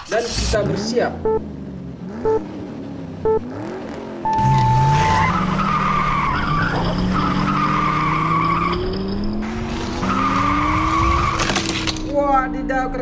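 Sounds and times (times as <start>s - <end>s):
race car engine rising in pitch: 1.2s - 11.5s
high tire squeal: 4.4s - 12.0s.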